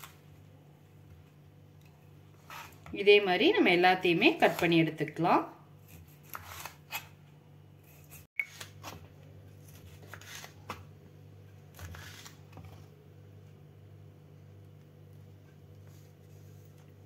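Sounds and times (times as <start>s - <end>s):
knife cutting on wooden board: 5.8s - 7.1s.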